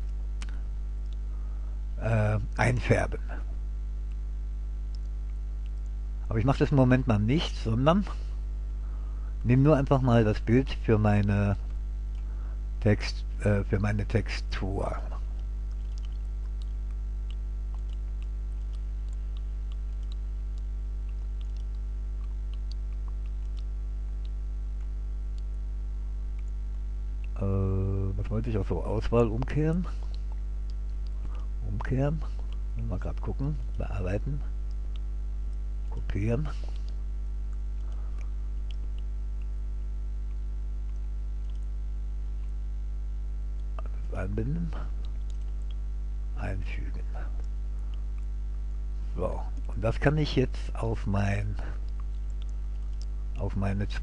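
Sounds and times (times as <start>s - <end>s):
faint clicks: 0.0s - 1.3s, 4.9s - 6.0s, 10.7s - 25.6s, 28.2s - 39.6s, 40.3s - 41.7s, 43.6s - 45.8s, 49.5s - 54.0s
electrical mains hum: 0.0s - 54.0s.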